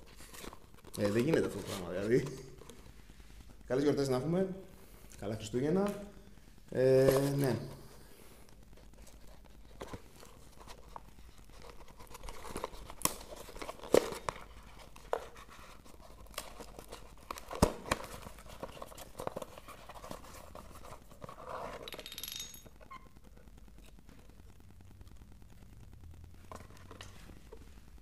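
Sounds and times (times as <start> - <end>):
crinkling rustle: 0.0 - 4.2, 4.9 - 21.9.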